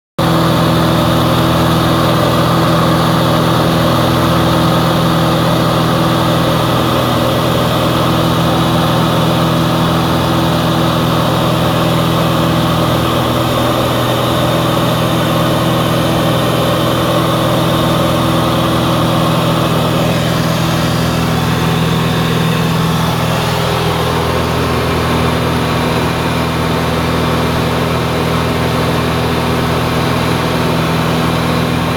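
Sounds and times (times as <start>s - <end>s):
aircraft engine and propeller drone: 0.2s - 31.9s.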